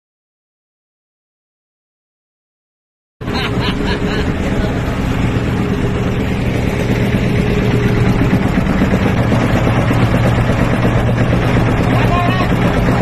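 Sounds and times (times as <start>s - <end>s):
engine idling: 3.2s - 13.0s
water churning and sloshing: 3.2s - 13.0s.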